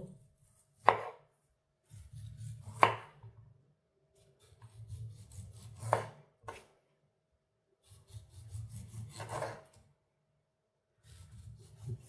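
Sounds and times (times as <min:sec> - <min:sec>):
knife sawing through fruit: 0:11.0 - 0:12.0.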